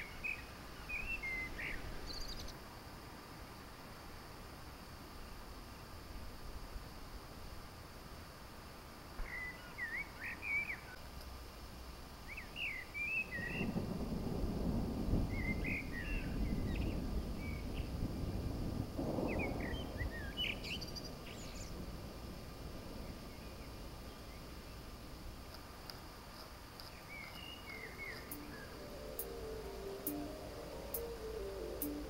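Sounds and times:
songbird singing: 0.0 - 2.6, 9.1 - 11.1, 12.2 - 32.0
distant thunder rumble: 13.3 - 24.6, 27.1 - 32.0.

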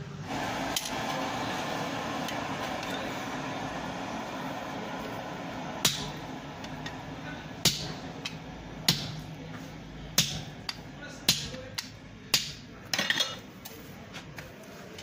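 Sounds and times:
steady background hum: 0.0 - 15.0
hammer striking chisel on metal: 5.8 - 6.2, 7.6 - 9.3, 10.2 - 12.7.

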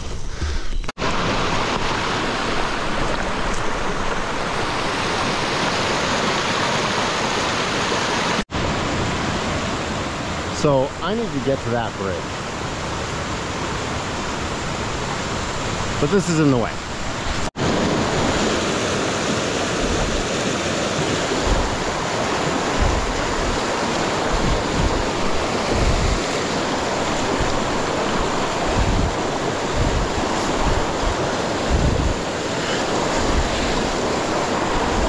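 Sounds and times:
creek water rushing over rocks: 1.0 - 35.0
wind buffeting microphone: 17.0 - 35.0.

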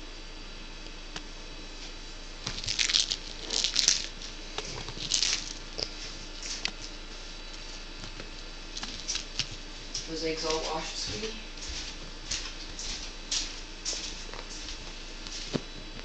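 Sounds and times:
cat toy crinkling and rattling: 2.5 - 5.8, 8.8 - 9.5.

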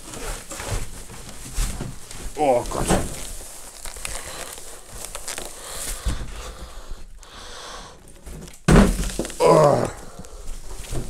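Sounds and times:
cardboard box rustling and scraping: 0.0 - 6.4
plastic wrapping crinkling: 0.0 - 6.6, 8.0 - 11.0.

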